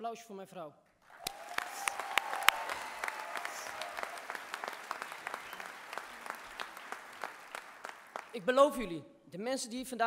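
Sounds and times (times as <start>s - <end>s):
audience applauding: 1.0s - 8.6s.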